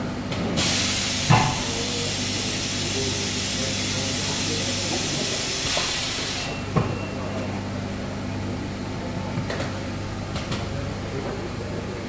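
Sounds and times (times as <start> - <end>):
low machine hum: 0.0 - 12.0
heat press hissing: 0.6 - 6.5.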